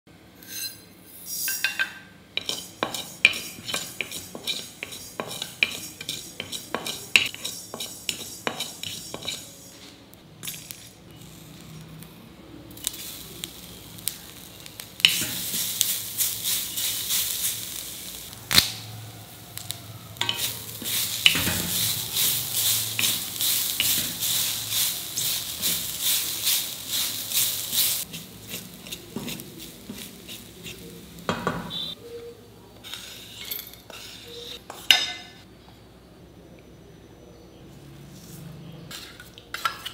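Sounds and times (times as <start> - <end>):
spatula knocking a pan: 2.4 - 9.4
food sizzling in a pan: 2.4 - 9.9, 10.5 - 32.0
spatula scraping a pan: 2.4 - 10.0, 20.2 - 32.0, 32.9 - 35.3.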